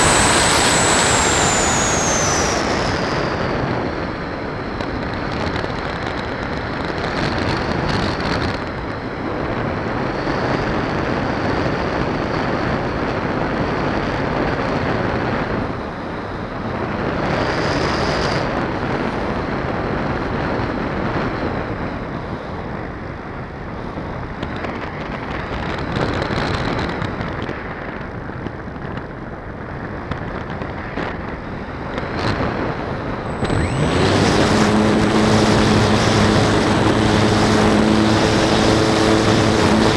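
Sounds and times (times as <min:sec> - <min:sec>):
air rushing over microphone: 0:00.0 - 0:21.3, 0:29.6 - 0:39.9
model plane motor and propeller: 0:00.0 - 0:39.9.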